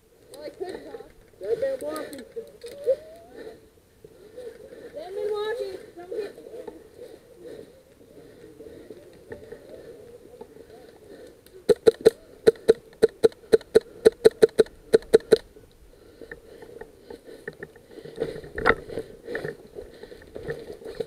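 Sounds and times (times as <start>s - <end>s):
rustling in dry brush: 0.4s - 11.2s.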